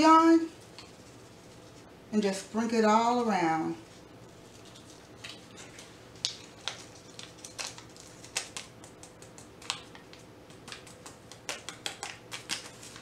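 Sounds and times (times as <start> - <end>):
wrapper handled: 3.9 - 13.0
bouillon cube crumbling crackles: 4.6 - 13.0.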